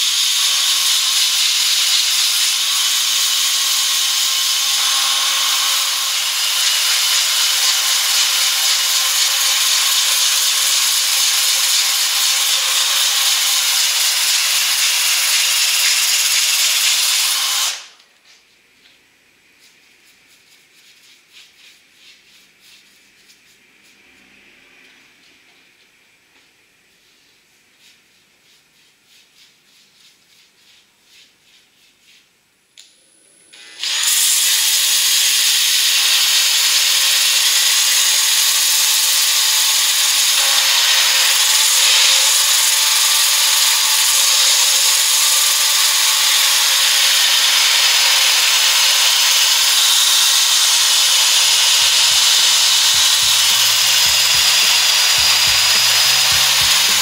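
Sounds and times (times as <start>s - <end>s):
drill sanding wood: 0.0s - 18.0s, 33.6s - 57.0s
brush scratching strokes: 19.6s - 24.2s, 26.9s - 32.4s, 51.7s - 57.0s.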